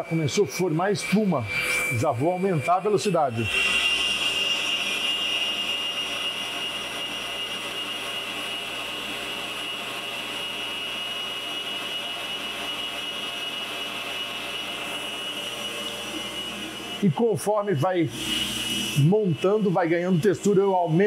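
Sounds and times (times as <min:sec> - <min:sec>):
stand mixer whisking cream: 0:00.0 - 0:21.0.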